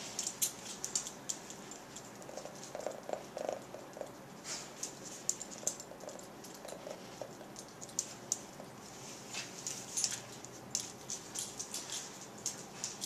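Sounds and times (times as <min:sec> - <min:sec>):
dog's teeth clicking: 0:00.2 - 0:08.6.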